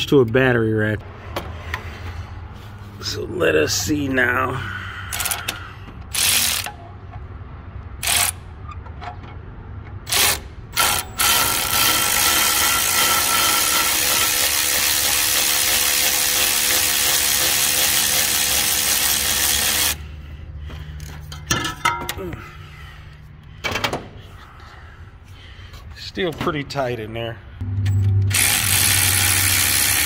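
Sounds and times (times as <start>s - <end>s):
cordless ratchet running: 5.1s - 6.8s, 8.0s - 8.4s, 10.1s - 20.0s, 28.3s - 30.0s.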